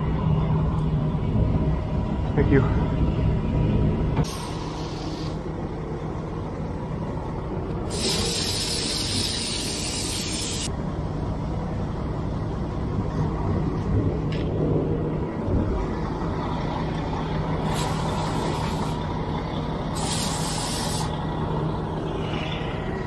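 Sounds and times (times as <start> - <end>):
truck engine rumbling: 0.0 - 23.0
water spraying from hose: 4.3 - 5.4, 7.9 - 10.7, 17.7 - 19.0, 20.0 - 21.1.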